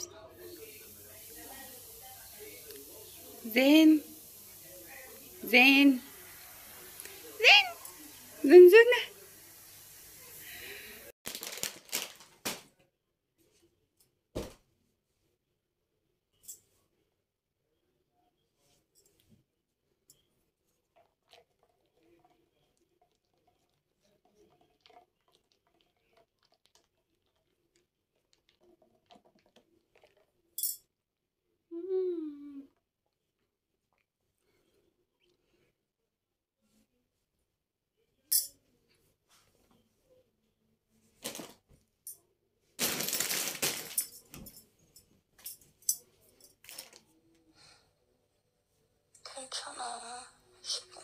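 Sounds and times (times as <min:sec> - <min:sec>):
bedding rustling: 0:42.8 - 0:44.6.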